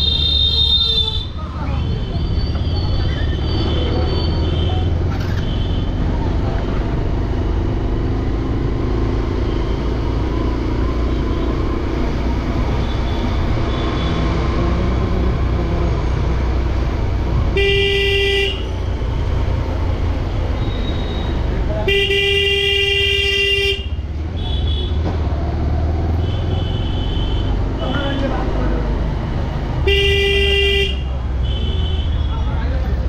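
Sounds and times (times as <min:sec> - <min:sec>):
motorcycle engine rumble: 0:00.0 - 0:33.0
vehicle horn honking: 0:17.5 - 0:18.7, 0:20.6 - 0:25.0, 0:26.2 - 0:27.6, 0:29.8 - 0:32.4.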